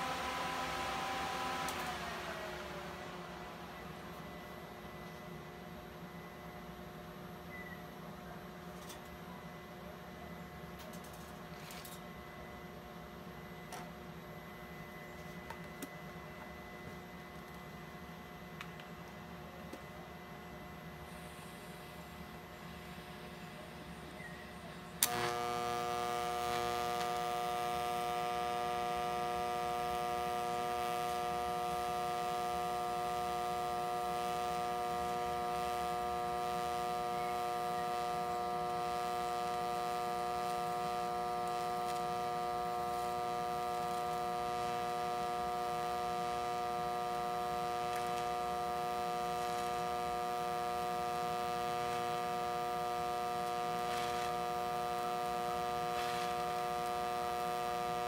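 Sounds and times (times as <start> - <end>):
welding arc humming and buzzing: 0.0 - 7.0, 24.9 - 58.0
welder arc striking click: 25.0 - 28.0, 38.7 - 44.8.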